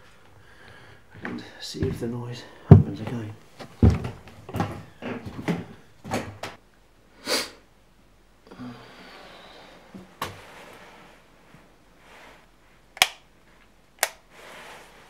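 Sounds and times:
footsteps in small room: 0.0s - 6.6s.

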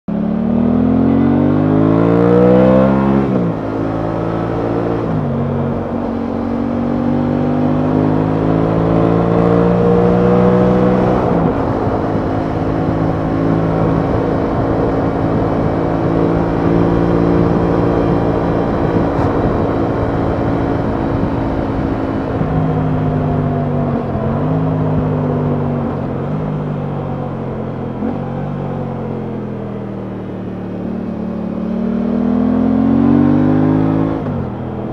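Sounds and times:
motorcycle engine accelerating: 0.1s - 34.9s
wind rushing over microphone: 1.5s - 26.4s.

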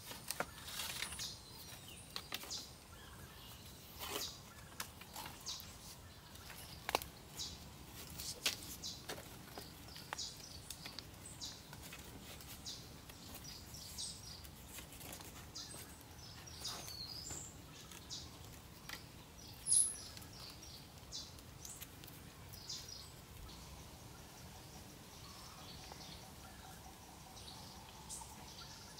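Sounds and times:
birds chirping: 0.0s - 28.9s
wooden poles clicking and knocking: 4.0s - 13.6s
high bird chirp: 19.5s - 21.3s.

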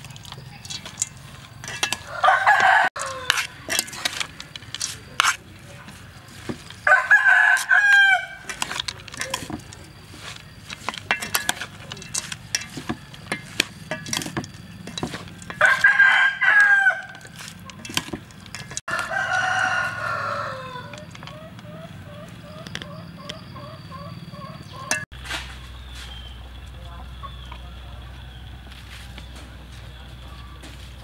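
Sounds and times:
spoons tossing salad in metal bowl: 0.0s - 19.7s
rooster crowing: 2.0s - 3.5s, 6.8s - 8.4s, 15.6s - 17.2s, 18.9s - 21.1s.

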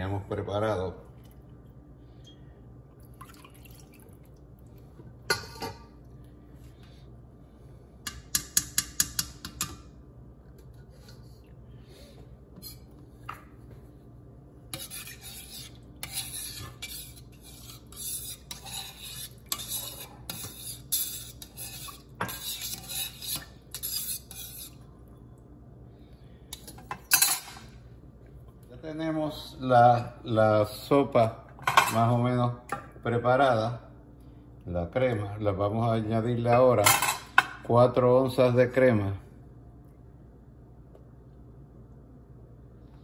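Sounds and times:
spoon scraping a saucepan: 14.7s - 24.9s.

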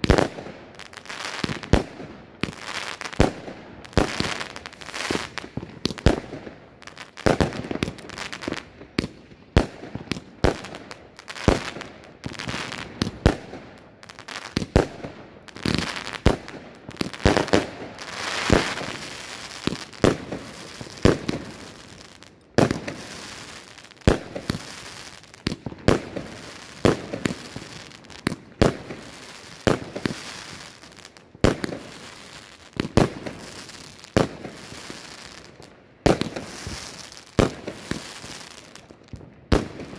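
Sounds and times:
firework bangs: 14.5s - 22.0s, 22.6s - 39.9s.

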